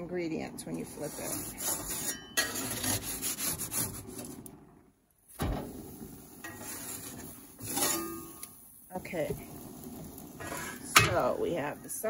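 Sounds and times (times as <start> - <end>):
metal spatula scraping grill grates: 0.7 - 4.4, 6.4 - 8.6, 9.2 - 12.0.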